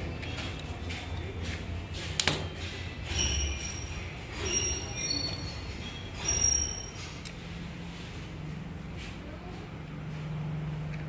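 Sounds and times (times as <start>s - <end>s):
high metallic rings: 2.5s - 7.6s.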